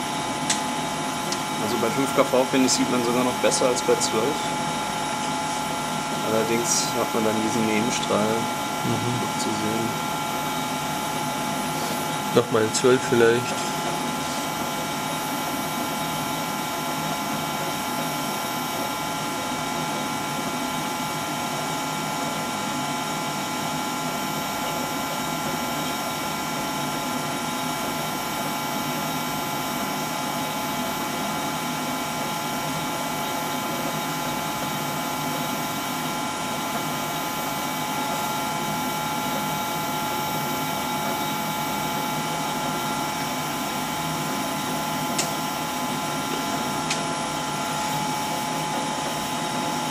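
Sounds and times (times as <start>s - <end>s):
steady mechanical noise: 0.0s - 49.9s.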